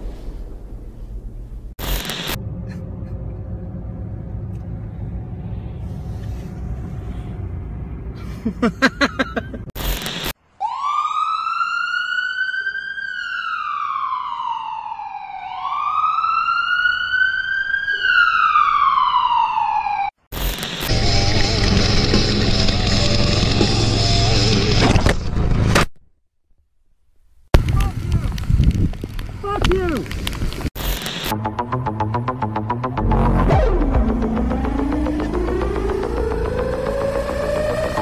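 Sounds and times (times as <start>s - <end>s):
wailing siren: 10.6s - 20.2s, 20.9s - 24.4s, 32.4s - 38.0s.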